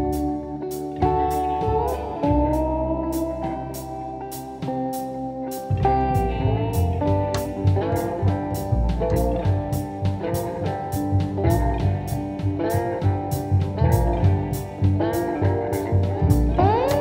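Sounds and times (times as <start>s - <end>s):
bass: 0.0s - 17.0s
guitar: 0.0s - 17.0s
steady drum beat: 5.7s - 17.0s.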